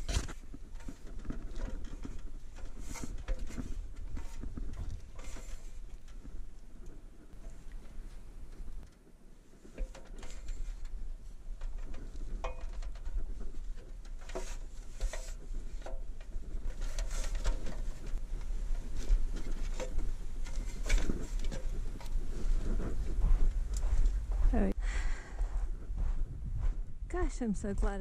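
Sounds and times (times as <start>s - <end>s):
knocks and clanks on metal ladder: 0.0s - 6.3s, 9.7s - 10.9s, 11.6s - 18.1s
steady low rumble: 18.0s - 28.0s.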